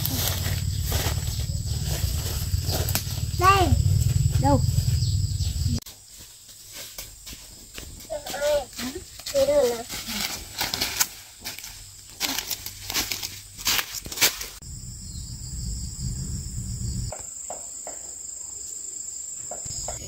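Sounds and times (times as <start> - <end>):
low rumble: 0.0 - 5.8, 14.6 - 17.1
rustling in undergrowth: 0.0 - 14.6
insects chirring: 0.0 - 20.0.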